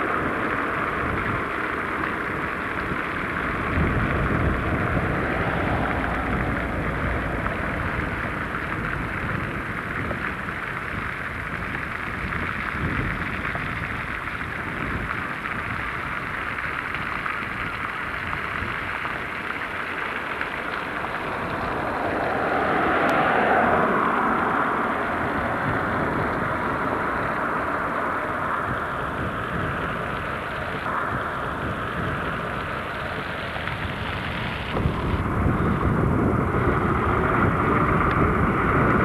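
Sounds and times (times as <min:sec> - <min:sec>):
road traffic rushing: 0:00.0 - 0:10.6, 0:19.4 - 0:39.0.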